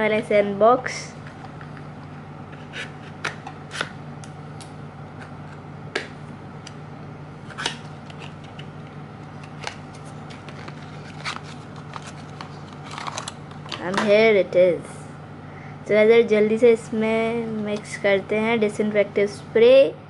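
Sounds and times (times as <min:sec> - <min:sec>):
paper leaflet rustling: 0:09.4 - 0:13.6.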